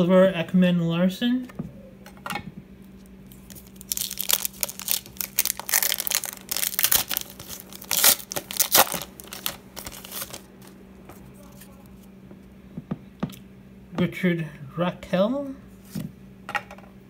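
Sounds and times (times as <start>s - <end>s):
foil wrapper tearing and crinkling: 3.3s - 10.5s.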